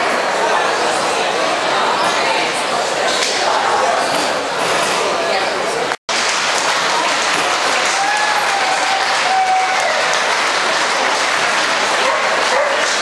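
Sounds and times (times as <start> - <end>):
crowd applauding: 6.1 - 13.0.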